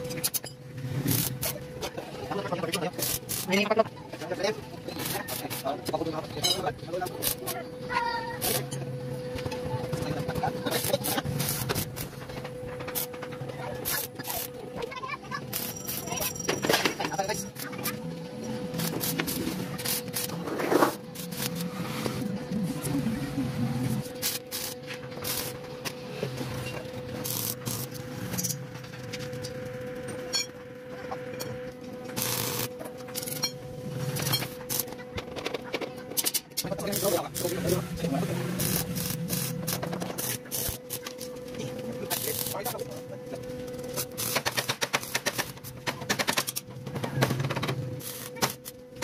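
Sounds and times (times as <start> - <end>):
arc welding crackling hiss: 0.0 - 8.8, 9.9 - 18.0, 18.7 - 30.0, 32.1 - 35.0, 36.2 - 46.6, 47.3 - 49.0
steady hum: 0.0 - 49.0.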